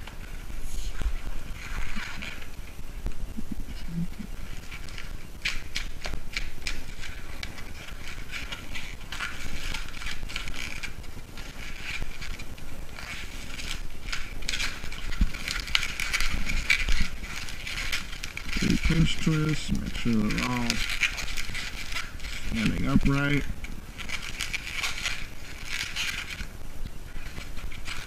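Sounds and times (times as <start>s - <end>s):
balloon squeaking and rubbing: 0.0s - 28.0s.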